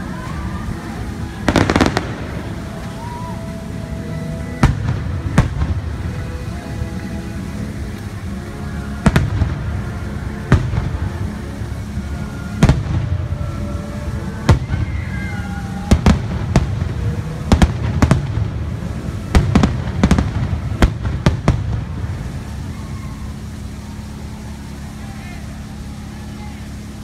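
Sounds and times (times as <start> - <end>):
fireworks bursting: 0.0 - 27.0.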